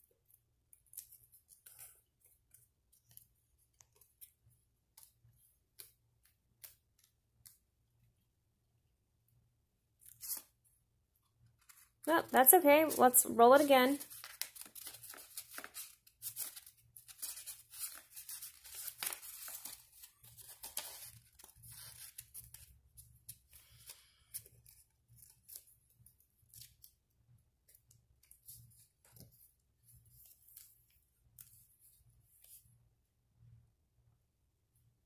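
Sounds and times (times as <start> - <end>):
paper rustling and crinkling: 11.5 - 27.0.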